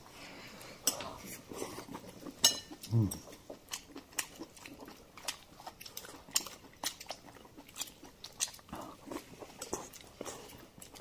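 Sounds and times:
person chewing with mouth clicks: 0.6s - 11.0s.

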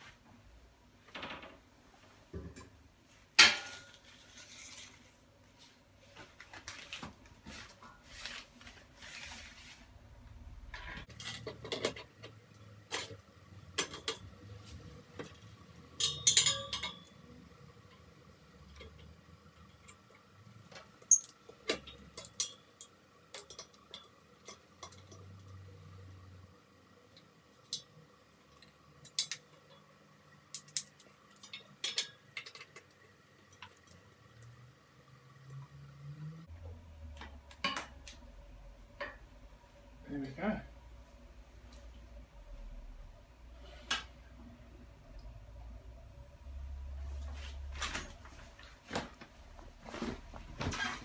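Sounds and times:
metallic clinks and knocks: 16.0s - 17.2s.

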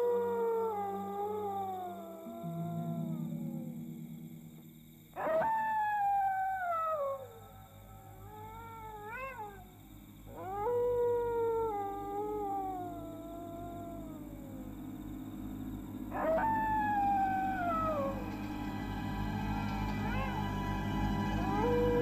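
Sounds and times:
dog howling: 0.0s - 3.7s, 5.2s - 15.0s, 16.1s - 22.0s
steady low hum: 6.4s - 22.0s.

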